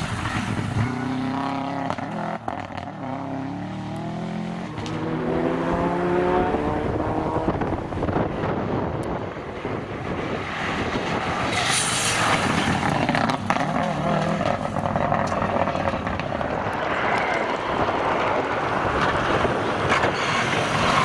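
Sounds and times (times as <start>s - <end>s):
rally car engine revving past: 1.0s - 7.8s.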